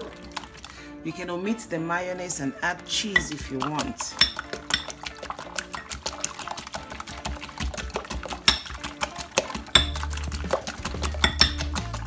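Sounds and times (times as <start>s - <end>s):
background music: 0.0s - 12.0s
whisk clicking against glass bowl: 3.1s - 12.0s.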